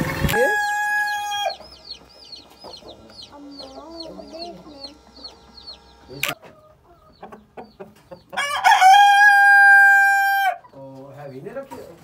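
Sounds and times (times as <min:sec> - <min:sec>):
baby chicks peeping: 0:00.0 - 0:12.0.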